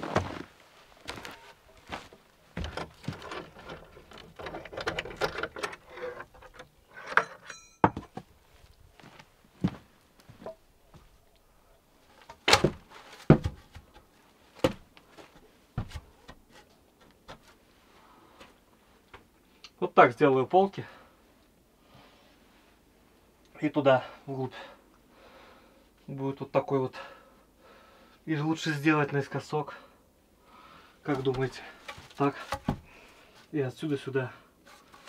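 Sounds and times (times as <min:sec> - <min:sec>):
wooden boards scraping and rustling: 0:00.0 - 0:07.4, 0:12.1 - 0:17.6, 0:31.1 - 0:33.5, 0:34.6 - 0:35.0
wood knocking against wood: 0:12.5 - 0:13.9, 0:31.3 - 0:32.8.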